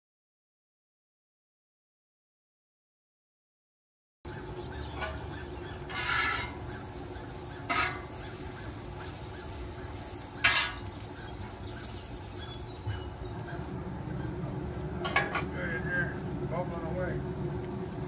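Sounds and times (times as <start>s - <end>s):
low sizzle: 4.3s - 18.0s
metal spatula scraping griddle: 4.9s - 11.1s, 15.0s - 15.5s.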